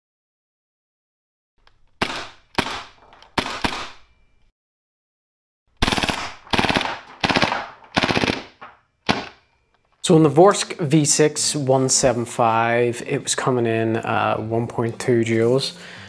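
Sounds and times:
airsoft gun shots echoing: 2.0s - 4.1s, 5.8s - 9.4s.

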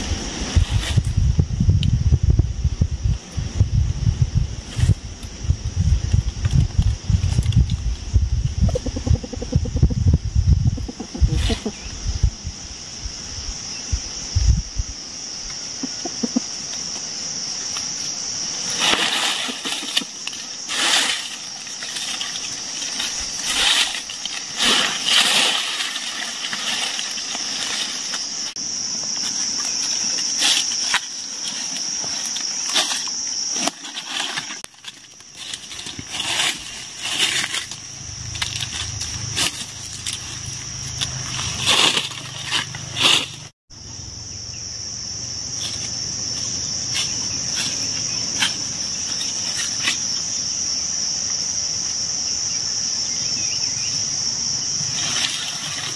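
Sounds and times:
high-pitched insect drone: 0.0s - 55.9s
dry leaves rustling and crackling: 17.6s - 43.6s, 54.8s - 55.9s.

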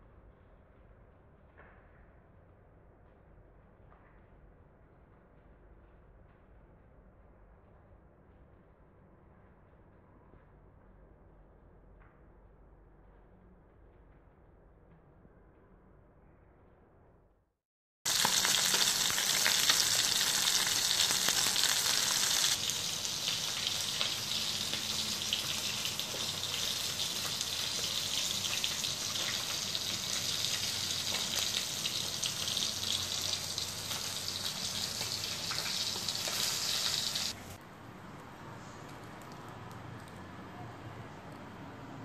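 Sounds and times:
fish frying in hot oil: 18.1s - 37.4s.

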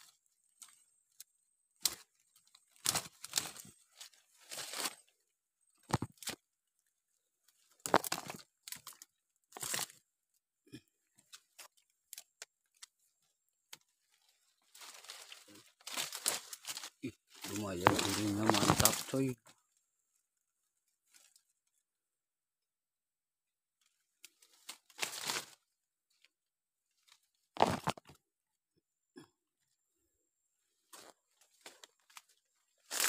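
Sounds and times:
stick scraping through mud and leaves: 1.8s - 5.1s, 14.6s - 19.2s, 24.2s - 25.6s, 27.6s - 28.2s.

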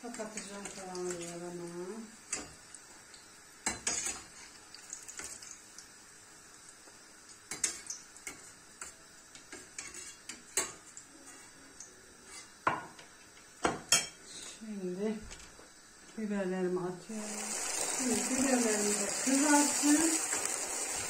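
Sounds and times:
oil sizzling: 0.0s - 14.2s, 17.1s - 21.0s
metal spoon scraping frying pan: 9.6s - 11.6s.

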